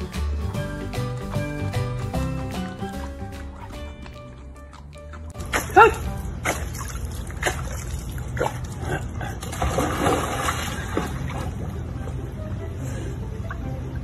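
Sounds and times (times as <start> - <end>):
dog swimming splashing water: 5.3 - 11.7.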